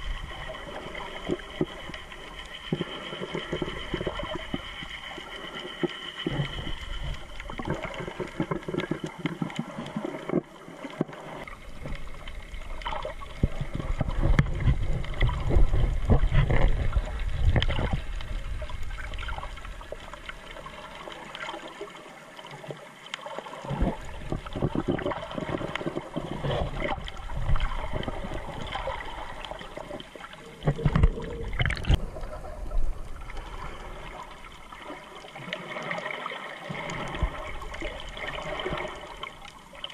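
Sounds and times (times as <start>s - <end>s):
underwater swishing and gurgling: 0.0s - 39.9s.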